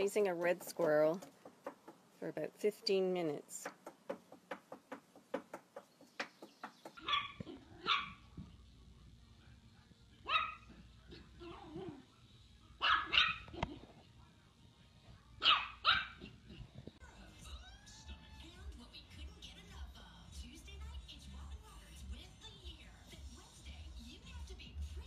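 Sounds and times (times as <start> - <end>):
dog barking in high yaps: 7.0 - 8.2, 10.3 - 10.6, 12.8 - 13.6, 15.4 - 16.2.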